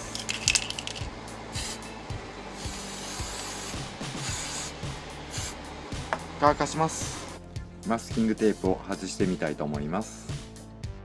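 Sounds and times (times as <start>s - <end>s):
spray paint can hissing: 0.0s - 1.9s, 2.5s - 5.6s.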